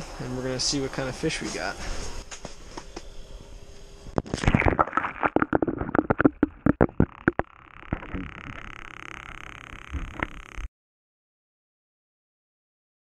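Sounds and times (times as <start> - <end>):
camera knocking and clicking: 5.5 - 8.6.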